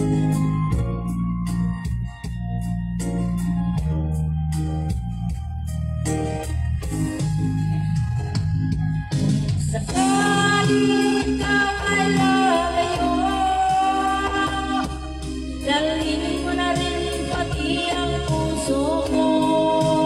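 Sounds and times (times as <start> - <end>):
backing track: 0.0 - 20.0
woman singing into a microphone: 9.7 - 20.0.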